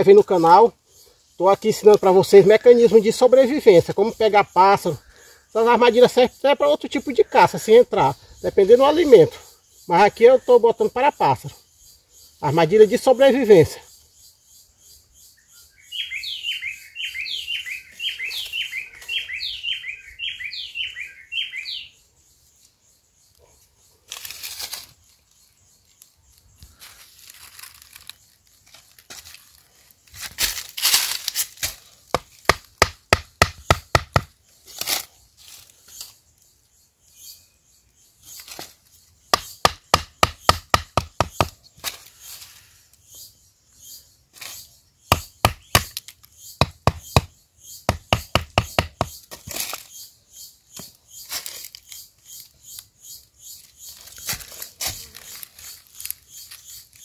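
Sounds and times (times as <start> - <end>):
bird chirping: 0.0 - 24.1, 33.0 - 57.0
blade chopping wood: 31.4 - 34.3, 39.3 - 41.6, 45.1 - 47.3, 47.9 - 49.8.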